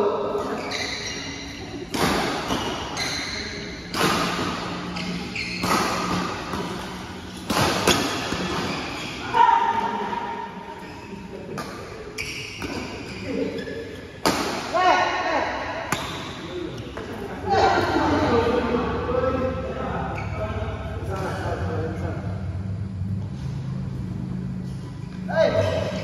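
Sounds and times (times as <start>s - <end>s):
shoes squeaking on court: 0.4s - 9.4s, 10.8s - 14.2s
racket hitting shuttlecock: 1.8s - 9.1s, 14.2s - 14.9s, 15.8s - 16.4s.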